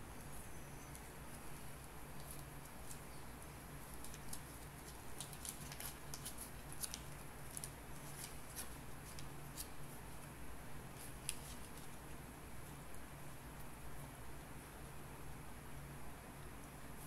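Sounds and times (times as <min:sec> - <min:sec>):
candy wrapper crinkling: 0:03.9 - 0:09.8.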